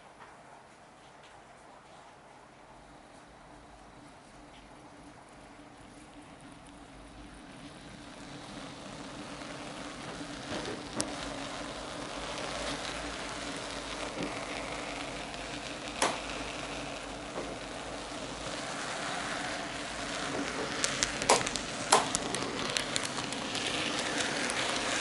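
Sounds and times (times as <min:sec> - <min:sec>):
model train rolling rumble: 0:02.7 - 0:25.0
wheels clicking over rail joints: 0:06.0 - 0:25.0.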